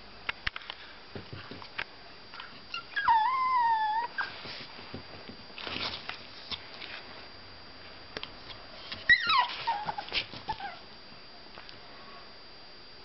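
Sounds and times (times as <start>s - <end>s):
dog whining: 2.7s - 4.4s, 9.0s - 10.8s.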